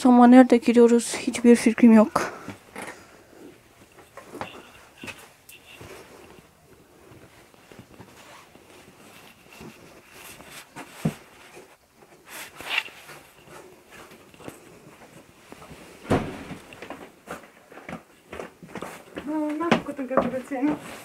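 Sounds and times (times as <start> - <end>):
knocks and rustles: 3.8 - 21.0
footsteps on wooden floor: 13.0 - 21.0.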